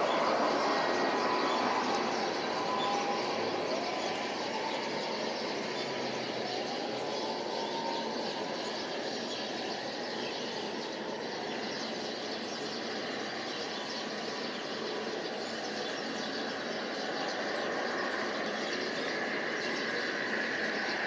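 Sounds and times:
jet engines whining: 0:00.0 - 0:05.3.

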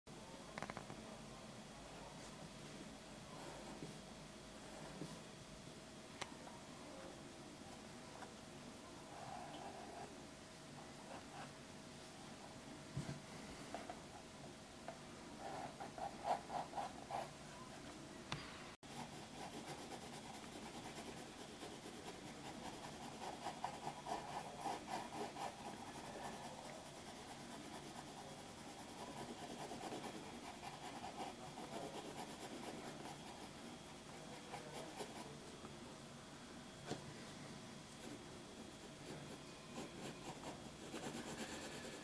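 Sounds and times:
pencil scratching on paper: 0:15.4 - 0:17.3, 0:18.8 - 0:35.3, 0:39.0 - 0:42.0.

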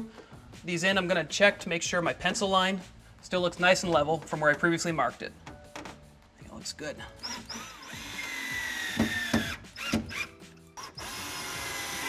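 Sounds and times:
cordless drill driving screws: 0:07.2 - 0:12.0
drill clicks: 0:07.2 - 0:12.0.

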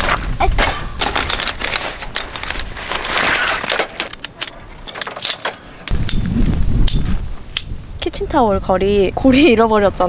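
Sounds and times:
metal rack parts clinking: 0:01.0 - 0:05.9
wind rumble on microphone: 0:05.8 - 0:10.0.

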